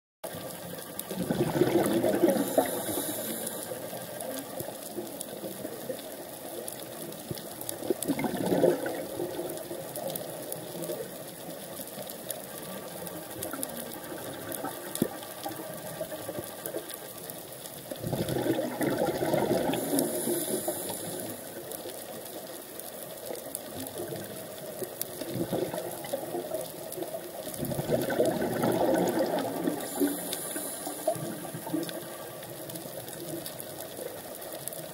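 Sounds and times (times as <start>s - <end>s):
fine underwater crackling: 0.2s - 34.9s
exhaled breath bubbling underwater: 1.1s - 4.0s, 7.8s - 9.6s, 18.0s - 21.5s, 27.5s - 32.2s.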